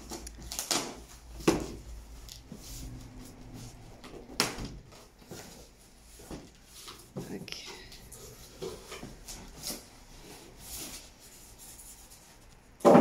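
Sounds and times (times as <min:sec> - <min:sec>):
cardboard snapping: 0:00.0 - 0:02.4
cardboard flaps scraping and rustling: 0:00.0 - 0:07.4, 0:08.0 - 0:13.0.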